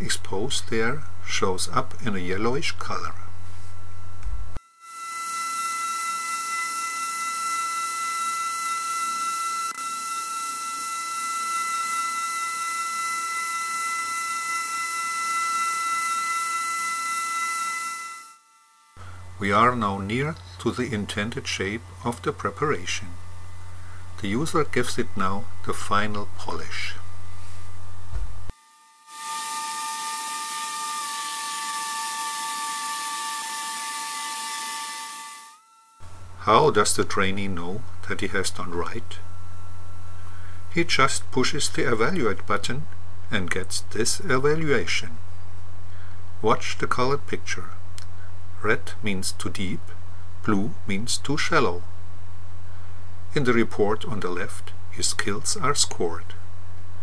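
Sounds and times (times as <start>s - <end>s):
synthesized dental drill whine: 4.5s - 45.1s
loud low hum: 19.0s - 28.5s.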